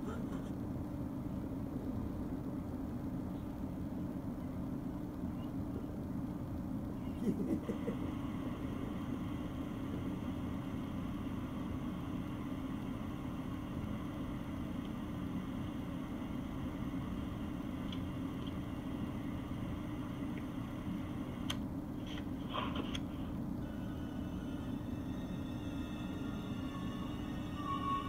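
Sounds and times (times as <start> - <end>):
low rumbling noise: 0.0 - 28.0.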